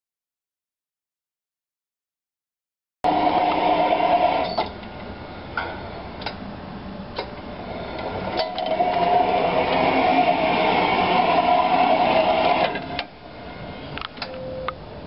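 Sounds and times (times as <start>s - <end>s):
motor hum: 3.1s - 4.7s, 7.5s - 14.1s.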